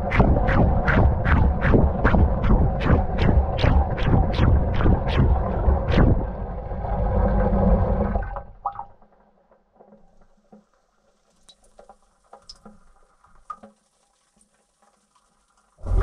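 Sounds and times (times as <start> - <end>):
faint drips and ticks: 8.6 - 15.9.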